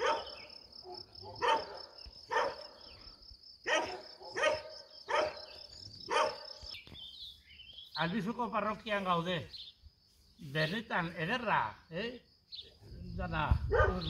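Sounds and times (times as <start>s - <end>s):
dog barking: 0.0s - 2.9s, 3.6s - 6.7s, 13.7s - 14.0s.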